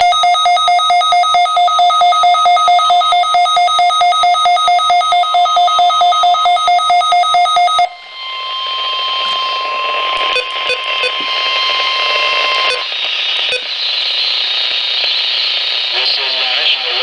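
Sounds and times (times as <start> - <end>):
radio static hiss: 8.5 - 17.0
radio alert beeping: 9.2 - 13.8.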